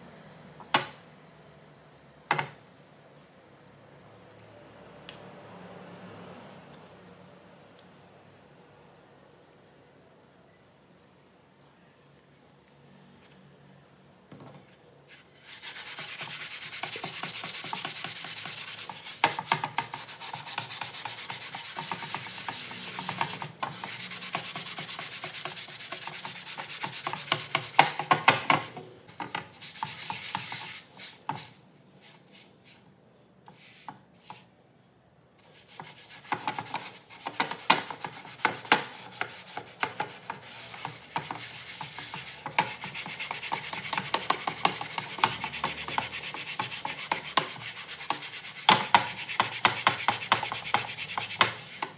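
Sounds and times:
sponge scrubbing metal pan: 15.4 - 31.1, 35.6 - 51.9.

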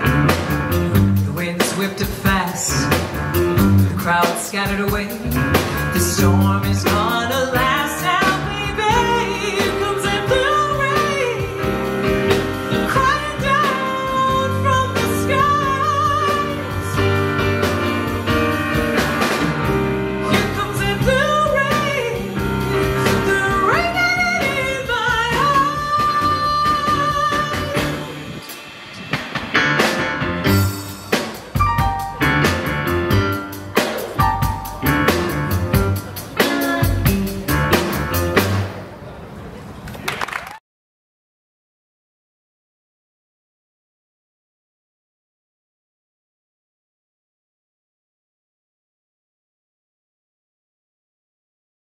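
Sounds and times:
upright bass: 0.0 - 28.5, 29.6 - 38.8
drum kit: 0.0 - 39.0
keyboard: 0.0 - 39.0
person singing: 20.2 - 28.5, 35.9 - 38.1.

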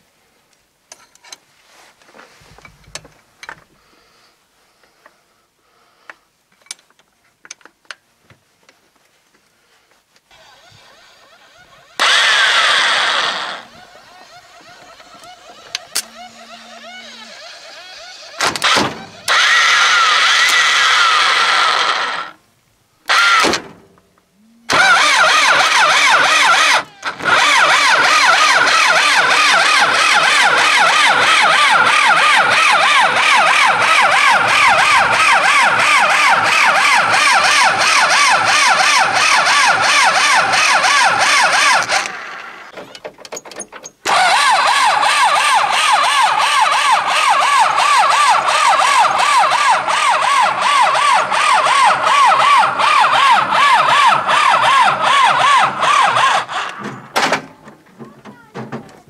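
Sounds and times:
starter motor cranking: 10.3 - 22.4, 23.1 - 23.6, 24.7 - 42.8, 44.0 - 57.1.

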